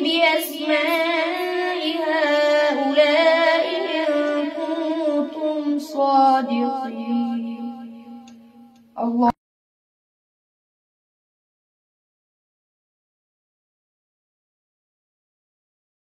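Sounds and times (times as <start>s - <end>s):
boy reciting melodically: 0.0s - 8.3s, 9.0s - 9.4s.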